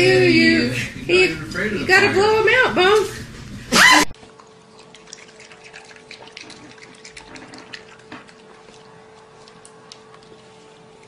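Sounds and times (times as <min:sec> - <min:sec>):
steady hum: 0:00.0 - 0:11.0
raccoon chewing wet clicks: 0:04.4 - 0:11.0.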